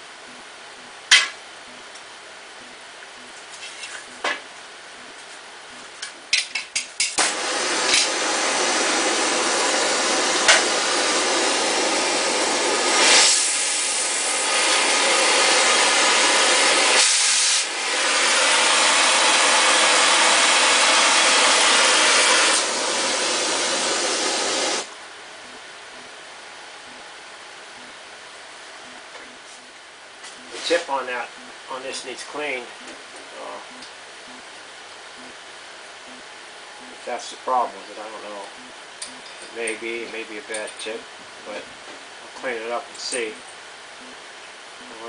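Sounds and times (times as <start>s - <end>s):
torch igniter clicks: 6.0s - 8.2s
cutting torch flame hissing: 7.0s - 24.9s, 30.2s - 34.4s.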